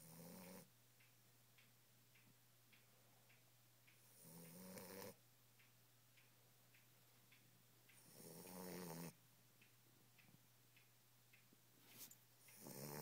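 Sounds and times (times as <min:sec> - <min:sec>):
puppy snoring: 0:00.0 - 0:00.7, 0:04.1 - 0:05.2, 0:08.0 - 0:09.2, 0:12.5 - 0:13.0.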